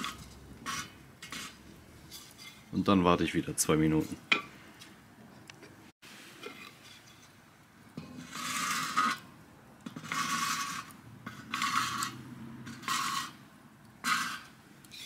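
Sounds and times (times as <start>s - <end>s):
clay scraping across steel bowl: 0.0s - 2.7s, 8.0s - 9.3s, 9.9s - 13.4s, 14.0s - 15.0s.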